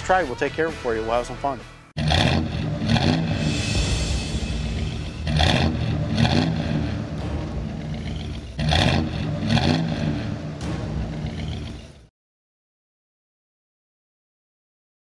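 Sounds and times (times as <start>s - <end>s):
vehicle engine revving: 2.0s - 12.1s.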